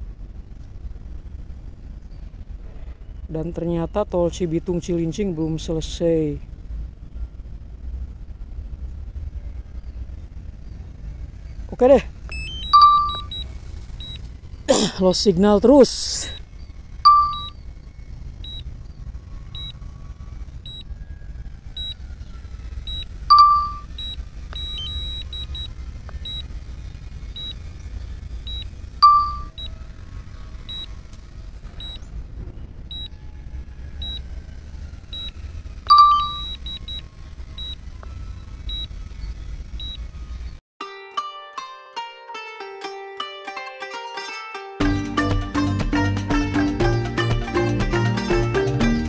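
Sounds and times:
low steady rumble: 0:00.0 - 0:40.6
remote controller warning beeps: 0:12.3 - 0:14.2, 0:17.0 - 0:17.6, 0:18.4 - 0:18.6, 0:19.6 - 0:19.8, 0:22.9 - 0:26.5, 0:27.4 - 0:27.6, 0:28.5 - 0:29.7, 0:30.7 - 0:30.9, 0:31.8 - 0:32.0, 0:32.9 - 0:33.1, 0:35.9 - 0:37.0, 0:38.7 - 0:38.9.

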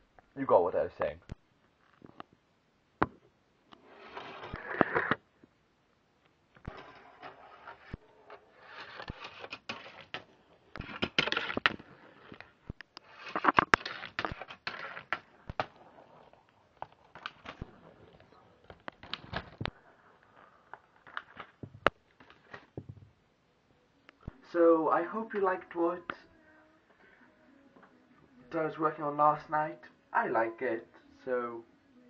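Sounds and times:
marble rolling on plastic track: 0:03.8 - 0:05.2, 0:06.7 - 0:17.9.

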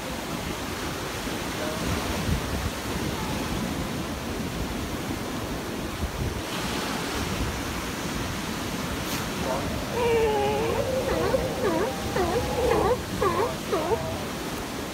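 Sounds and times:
wind buffeting microphone: 0:09.3 - 0:14.5.

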